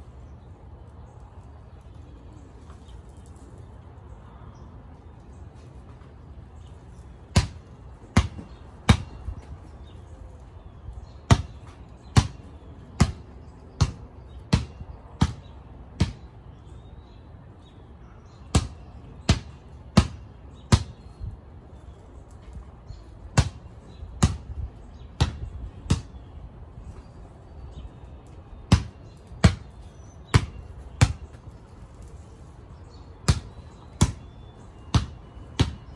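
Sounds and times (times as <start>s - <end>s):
basketball bouncing on concrete: 7.3s - 9.6s, 11.2s - 16.3s, 18.5s - 21.0s, 23.3s - 26.2s, 28.7s - 31.7s, 33.2s - 35.9s.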